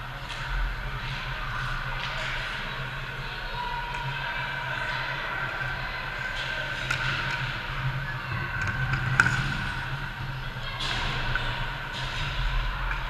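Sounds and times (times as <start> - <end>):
sticks and puck clacking: 6.2 - 7.7, 8.6 - 10.0.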